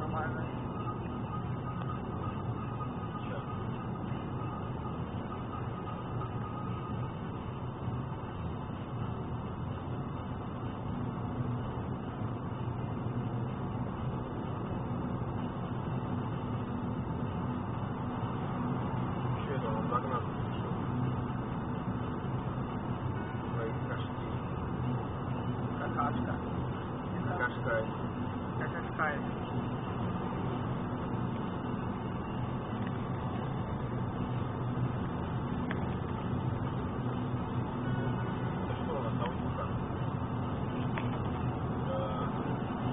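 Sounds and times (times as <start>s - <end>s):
car engine hum: 0.0s - 42.9s
tyres rumbling on road: 0.0s - 42.9s.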